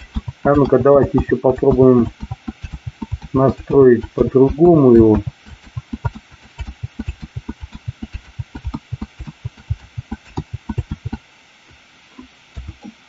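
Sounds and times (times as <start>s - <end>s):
mouse and keyboard clicking: 0.0s - 11.2s, 12.2s - 13.0s.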